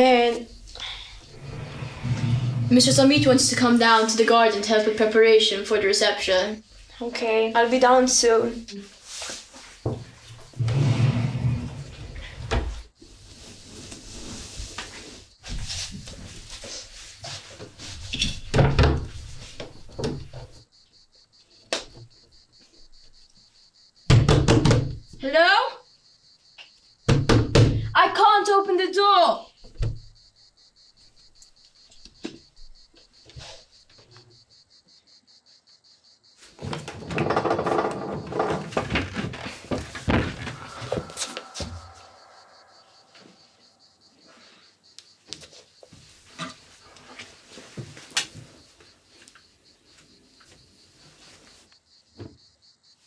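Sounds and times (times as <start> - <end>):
wooden drawers and doors rattling: 36.6 - 40.6
dull thumps: 36.6 - 42.2.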